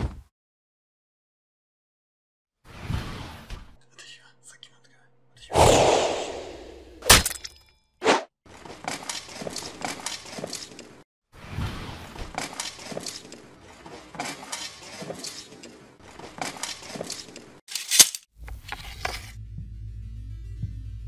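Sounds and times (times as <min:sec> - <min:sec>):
footsteps with armour clinking: 0:08.5 - 0:11.0, 0:12.4 - 0:18.3
low music drone: 0:19.2 - 0:21.0.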